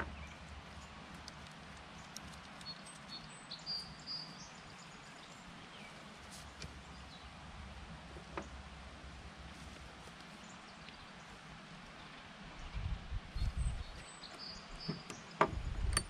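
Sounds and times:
bird chirps: 2.0 - 6.0, 13.4 - 15.6.

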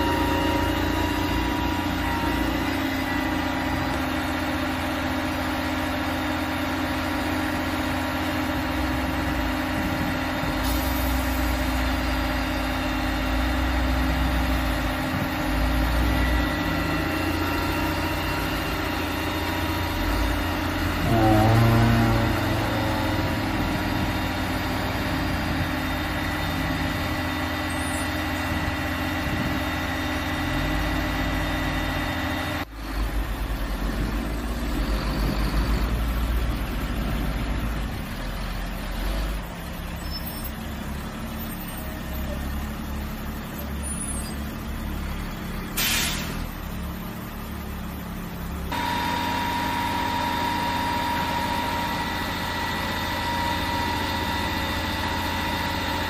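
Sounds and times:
diesel engine idling: 0.0 - 56.0
air brake hiss: 10.6 - 11.4, 45.7 - 46.6.

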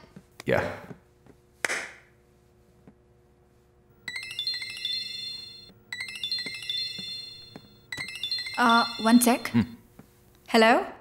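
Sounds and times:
phone ringtone chiming melody: 4.0 - 9.8.

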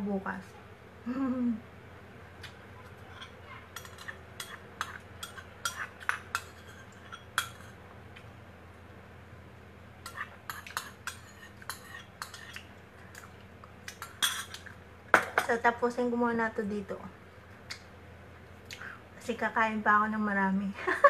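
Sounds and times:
spoon clinking ceramic bowl: 3.2 - 7.8.

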